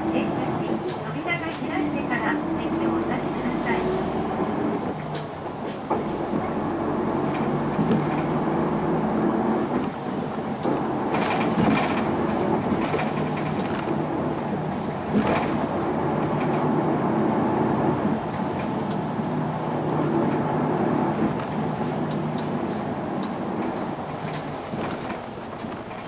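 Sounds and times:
bus diesel engine running: 0.0 - 26.0
tyre and road noise: 0.0 - 26.0
knocks and rattles: 10.6 - 14.0.

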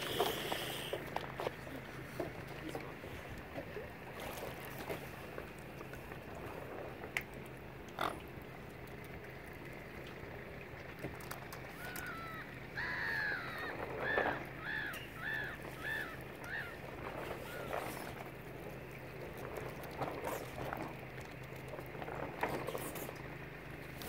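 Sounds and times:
bird calling short notes: 11.7 - 16.8.

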